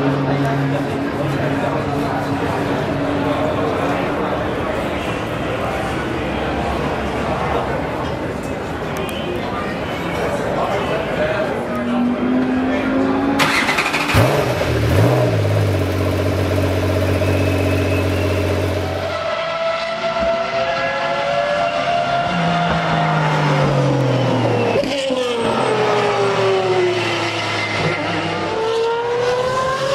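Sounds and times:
race cars accelerating on track: 0.0s - 29.9s
race car engine starting and idling: 12.7s - 19.2s.

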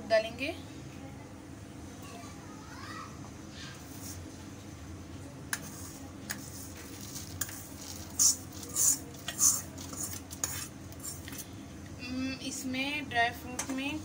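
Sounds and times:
steel ladle scraping a pot: 5.6s - 11.4s.

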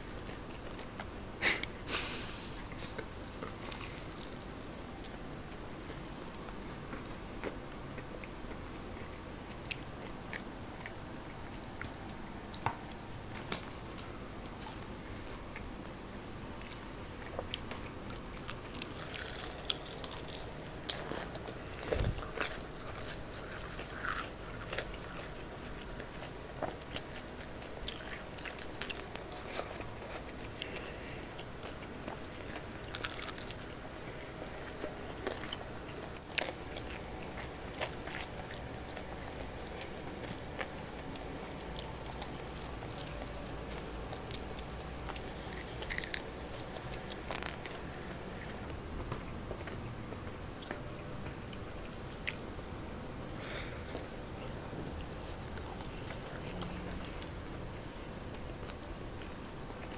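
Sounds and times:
crunching bites and chewing: 16.6s - 52.7s
crackles of crispy skin: 16.6s - 59.9s.

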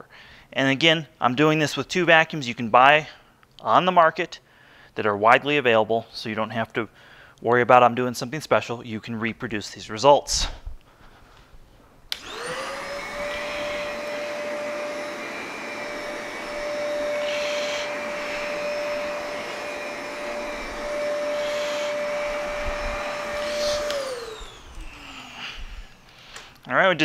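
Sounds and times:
vacuum head pushed over carpet: 12.1s - 26.1s
vacuum cleaner motor whine: 12.1s - 26.2s.

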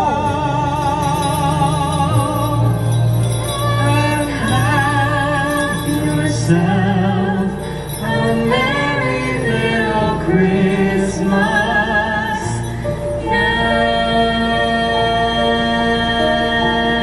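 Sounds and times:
backing music: 0.0s - 17.0s
man and women singing: 0.0s - 17.0s.

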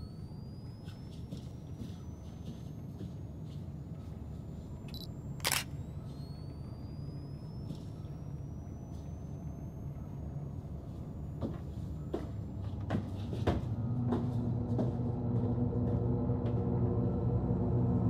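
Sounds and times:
low ambient film score rumble: 13.5s - 18.0s.

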